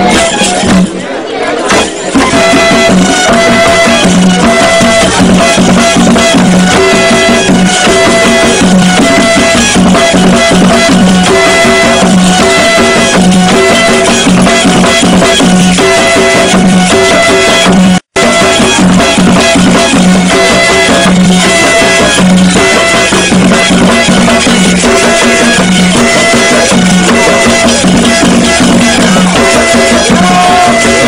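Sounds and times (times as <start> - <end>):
fast dense drumming: 1.7 - 31.0.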